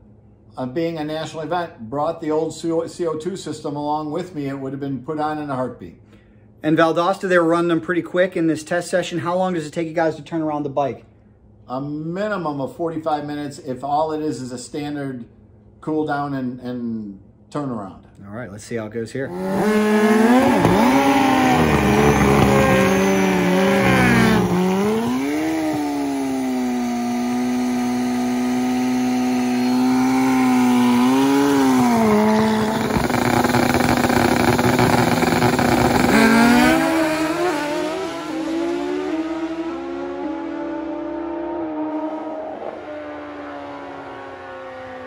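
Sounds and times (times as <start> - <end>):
motorcycle engine revving: 19.3 - 45.0.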